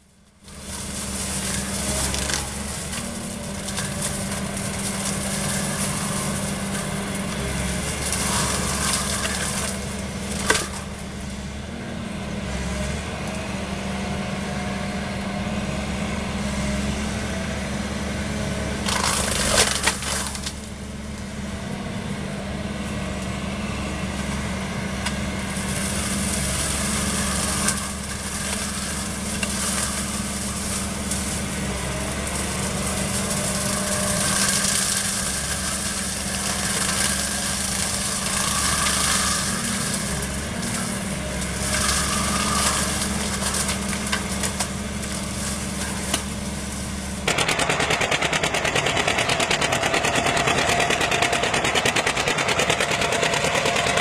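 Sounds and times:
excavator engine running: 0.0 - 54.0
flail mower chewing branches: 0.1 - 54.0
wood splintering cracks: 0.4 - 11.2, 18.8 - 20.8, 25.0 - 54.0.

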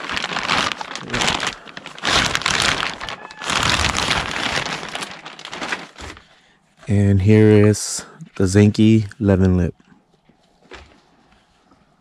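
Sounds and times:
packaging rustling and crinkling: 0.0 - 6.5.

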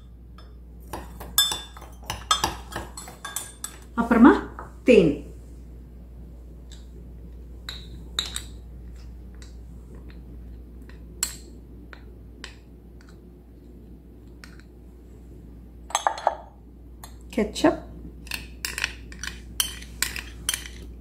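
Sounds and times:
metal spoon clinking on glass: 1.4 - 3.9, 15.9 - 16.4.

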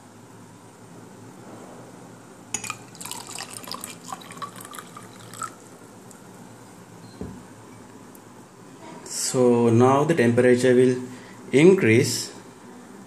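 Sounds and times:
water pouring into a glass: 2.6 - 6.2.

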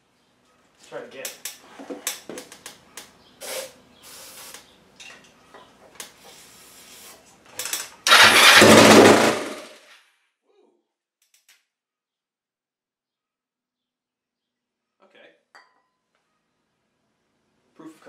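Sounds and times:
aerosol spray hiss: 3.4 - 4.6
motorcycle engine firing briefly: 8.1 - 9.8.

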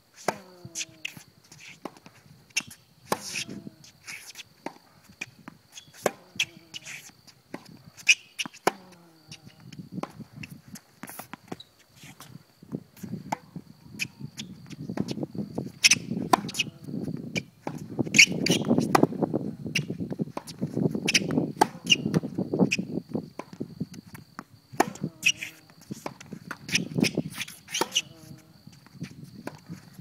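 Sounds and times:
racket striking tennis ball: 0.2 - 1.0, 2.6 - 3.6, 6.0 - 8.9, 15.8 - 16.7, 21.1 - 22.2, 24.8 - 28.2
shoes scuffing court: 0.2 - 30.0.

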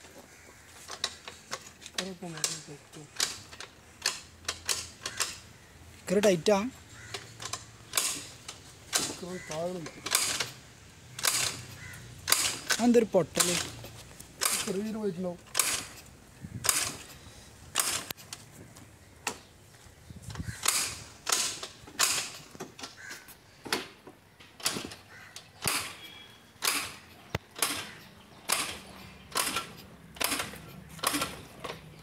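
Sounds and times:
scooter engine kick-start strokes: 7.0 - 10.6, 11.2 - 18.4, 20.3 - 32.0.

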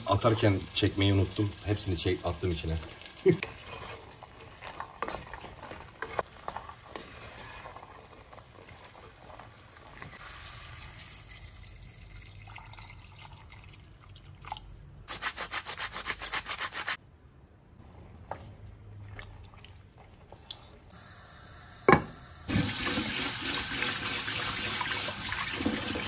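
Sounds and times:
wooden spoon scraping clay pot: 3.4 - 10.2.

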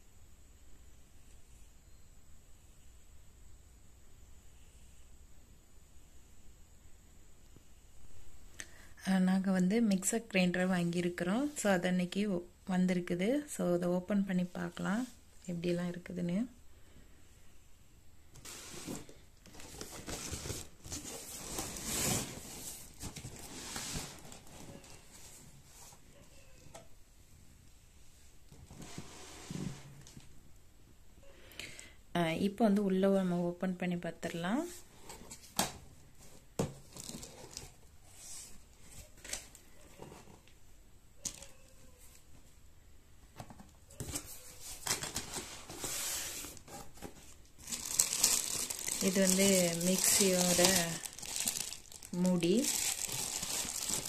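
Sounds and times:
cardboard box rustling and crinkling: 18.4 - 25.6, 36.3 - 37.8, 44.0 - 54.0.

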